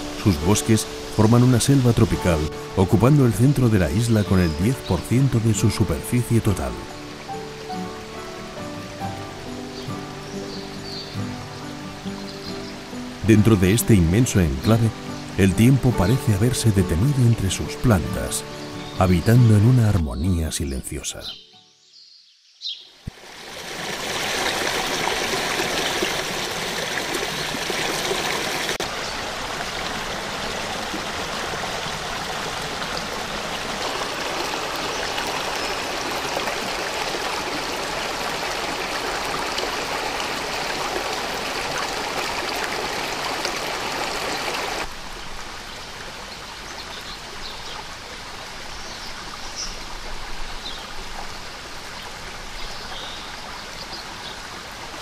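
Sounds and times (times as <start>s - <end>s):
stream trickling over stones: 23.0s - 55.0s.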